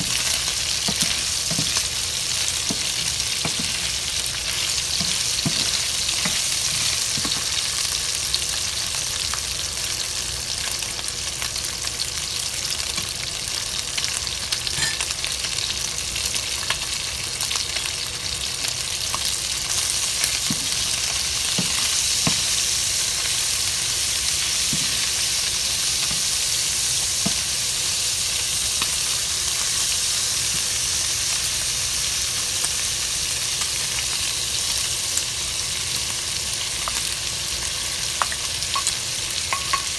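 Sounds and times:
meat sizzling in a frying pan: 0.0 - 39.9
wooden spoon knocking on pan: 5.0 - 6.4.

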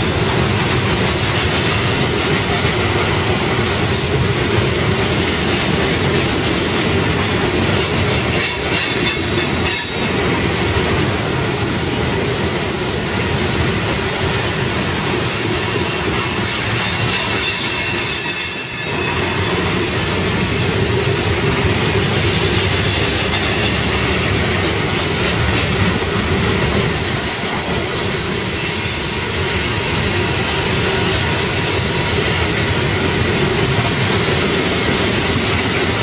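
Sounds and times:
train wheels rumbling on rail: 0.0 - 36.0
high wheel squeal: 8.2 - 10.2, 11.2 - 21.3, 22.6 - 25.5.

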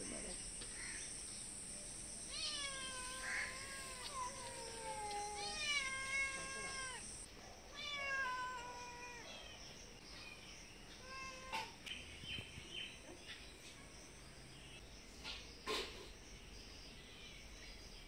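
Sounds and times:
cat meowing: 2.3 - 9.5.

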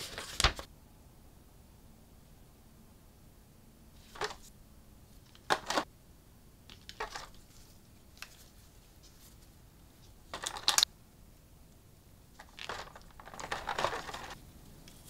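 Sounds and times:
packaging rustling: 6.7 - 9.4, 10.3 - 10.9, 12.4 - 14.4
packaging clicks: 10.4 - 10.9, 12.4 - 14.4.

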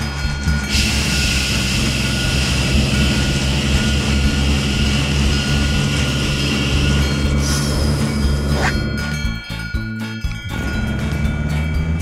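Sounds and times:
background music: 0.0 - 12.0
cartoon water jet hissing: 0.7 - 8.9.

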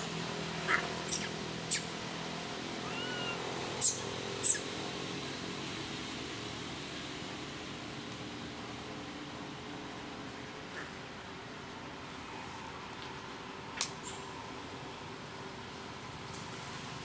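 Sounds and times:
high-pitched animal squeaks: 0.7 - 1.9, 2.8 - 4.6.

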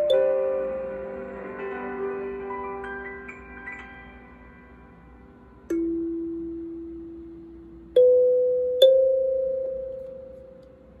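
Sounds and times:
kalimba notes plucked: 0.0 - 1.3, 5.7 - 10.6.

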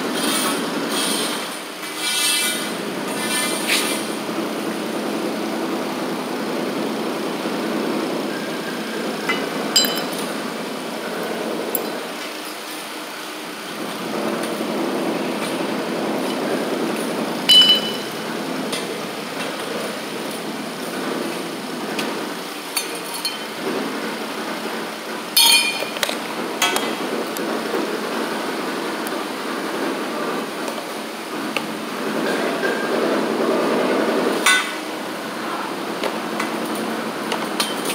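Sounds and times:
steady background noise: 0.0 - 37.9
metal pipe fittings clinking: 9.3 - 10.3.

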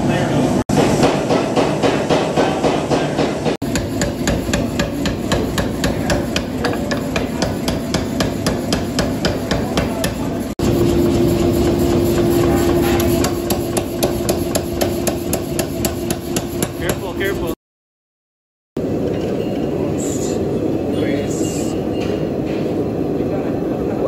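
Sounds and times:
power hammer striking hot steel: 0.7 - 17.1.

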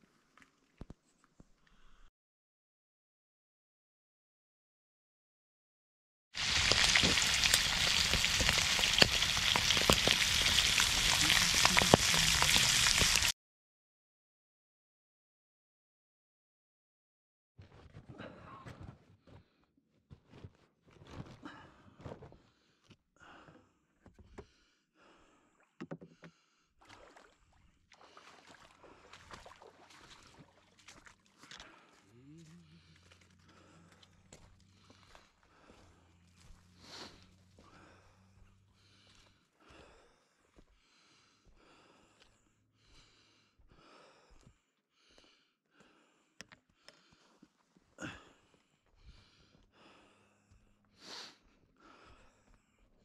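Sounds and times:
person breathing heavily: 21.4 - 26.8, 31.6 - 53.0
clunks in a wooden canoe: 25.8 - 26.4.

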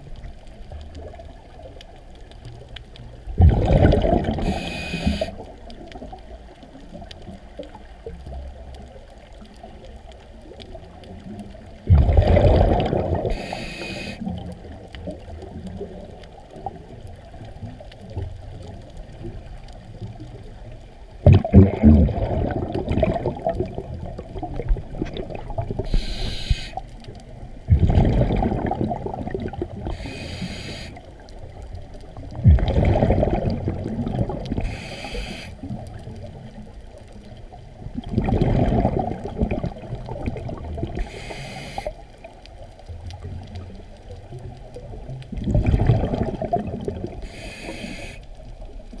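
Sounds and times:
exhaled bubbles rushing: 3.3 - 6.4, 10.4 - 13.6, 21.2 - 26.5, 27.4 - 30.2, 30.8 - 41.3, 43.0 - 47.2
regulator inhale hiss: 4.4 - 5.5, 13.2 - 14.4, 25.8 - 26.9, 29.8 - 31.2, 34.6 - 35.7, 41.0 - 42.1, 47.2 - 48.4.

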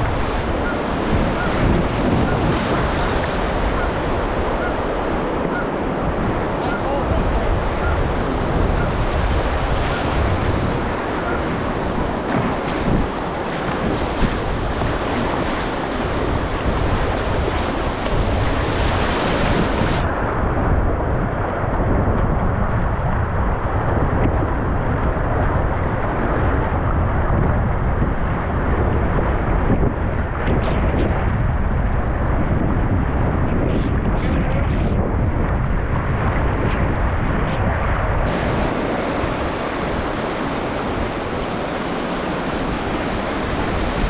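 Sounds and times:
river water rushing and splashing: 0.0 - 20.1, 38.2 - 44.0
wind buffeting the microphone: 0.0 - 44.0.

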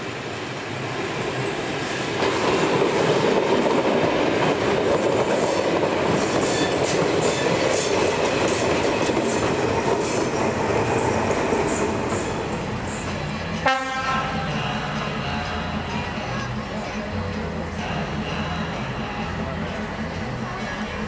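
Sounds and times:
diesel locomotive: 0.0 - 21.0
train wheels clacking over rail joints: 2.1 - 13.4.

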